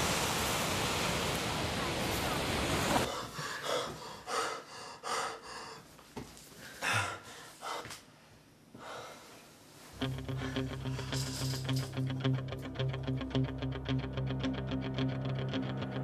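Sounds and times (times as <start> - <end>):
person breathing hard: 3.1 - 9.5, 10.2 - 11.8
guitar and bass music: 10.0 - 16.0.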